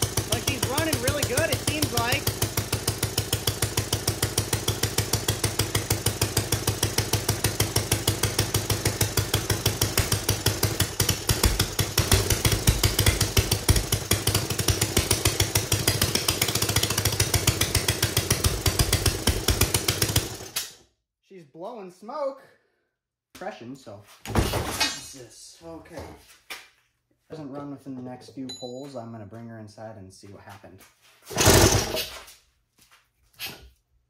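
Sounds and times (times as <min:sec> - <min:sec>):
small engine running: 0:00.0 - 0:20.6, 0:31.3 - 0:32.1.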